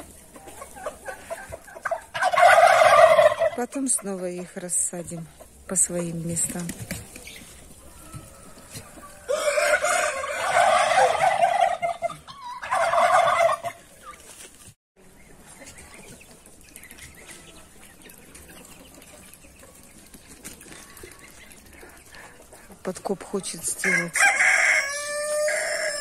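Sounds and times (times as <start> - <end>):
turkeys gobbling: 0.0 - 4.4, 6.9 - 14.4, 23.8 - 26.0.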